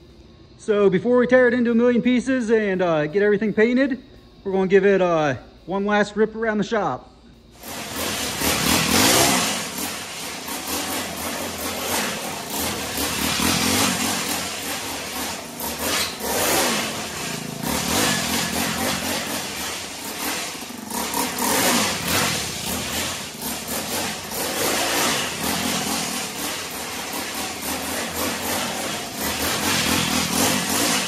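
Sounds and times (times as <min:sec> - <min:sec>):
small engine revving: 0:07.6 - 0:31.0.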